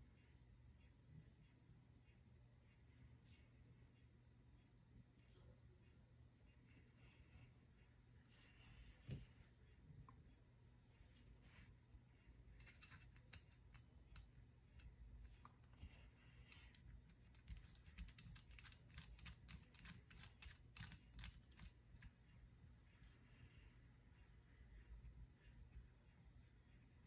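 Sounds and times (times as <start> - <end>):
clicks of metal parts handled: 12.6 - 15.8, 16.5 - 22.1.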